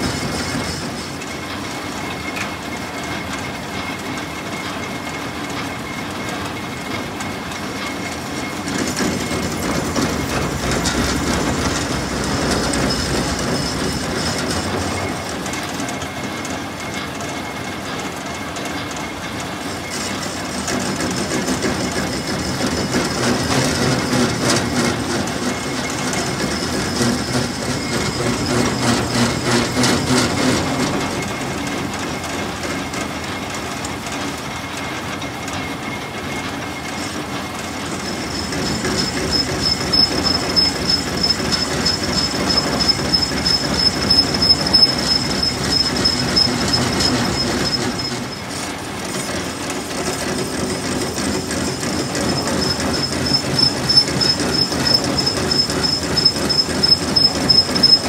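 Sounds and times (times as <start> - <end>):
metal lathe running: 0.0 - 58.0
high squeal from cutting tool: 7.6 - 16.3, 19.6 - 33.4, 35.9 - 58.0
cutting tool grinding metal: 21.6 - 31.3, 38.0 - 48.5.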